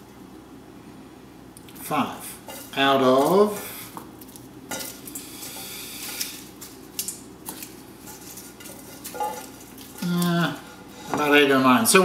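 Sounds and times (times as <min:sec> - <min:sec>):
garlic skins rustling: 0:02.6 - 0:11.4.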